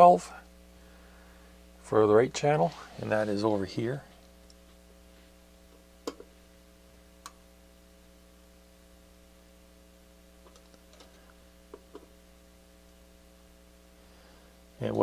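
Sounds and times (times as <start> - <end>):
faint mains hum: 0.0 - 15.0.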